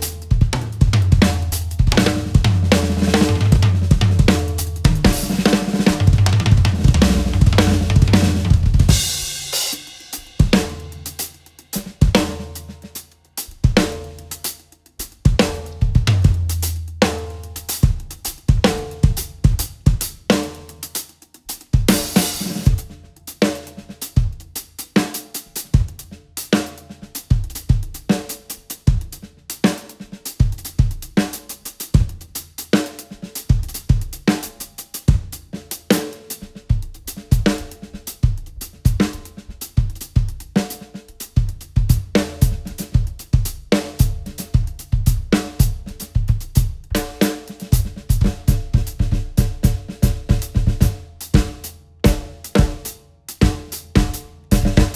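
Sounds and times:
bass drum strokes: 0:00.0 - 0:11.1
drum kit played solo: 0:00.0 - 0:54.9.

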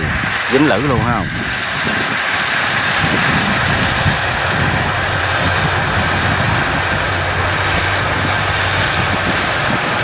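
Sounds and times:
combine harvester engine drone: 0:00.0 - 0:10.0.

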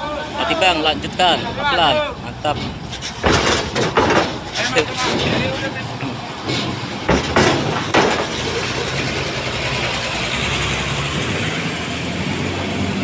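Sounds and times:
diesel engines running: 0:00.0 - 0:13.0
wheels clanking on metal ramp: 0:01.2 - 0:10.0.

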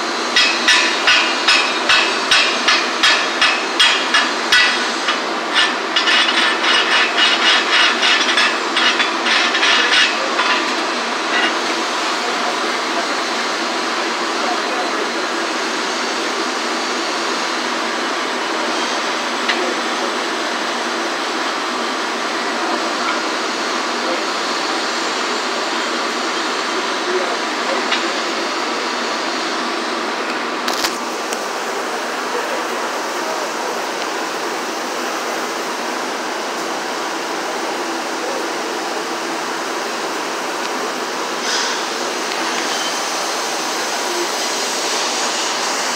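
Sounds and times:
rushing workshop background noise: 0:00.0 - 0:45.9
wire brush scrubbing metal: 0:00.4 - 0:11.6.

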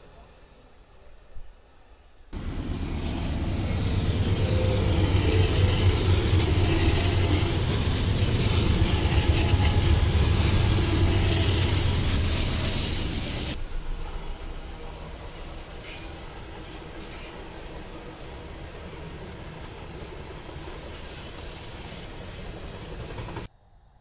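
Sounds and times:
freight cars passing: 0:02.4 - 0:13.6
locomotive engines rumbling: 0:02.4 - 0:23.5.

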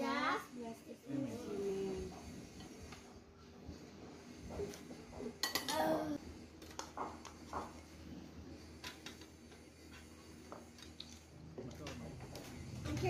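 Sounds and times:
spoons clinking on plates: 0:05.4 - 0:05.8.

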